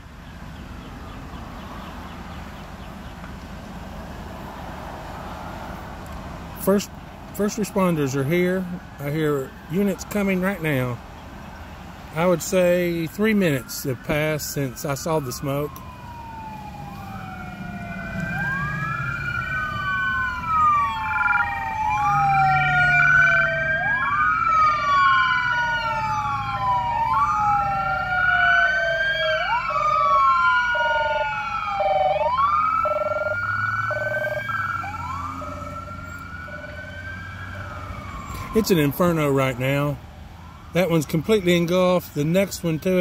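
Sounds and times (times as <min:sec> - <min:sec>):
vehicle engines rumbling: 0:00.0 - 0:43.0
wail siren: 0:07.4 - 0:10.9, 0:12.2 - 0:41.7
two-tone siren: 0:13.2 - 0:39.2.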